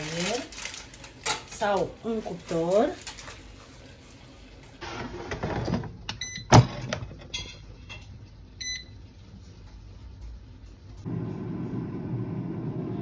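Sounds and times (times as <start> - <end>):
air fryer basket scraping: 4.8 - 6.0.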